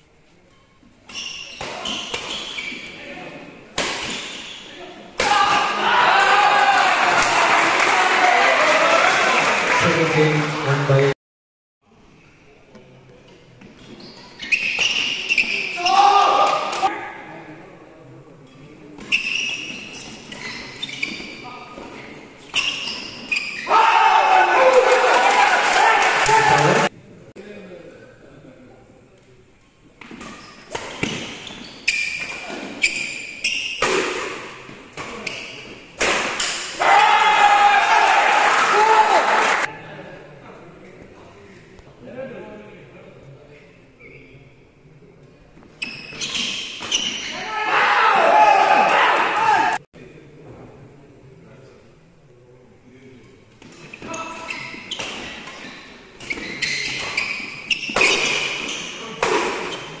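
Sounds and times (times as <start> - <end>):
shoes squeaking on court: 0.4 - 3.1, 4.0 - 4.7, 13.3 - 16.0, 18.4 - 23.7, 30.0 - 33.8, 34.6 - 35.9, 45.6 - 47.5, 53.6 - 60.0
rackets hitting shuttlecock: 33.8 - 35.3, 55.0 - 60.0.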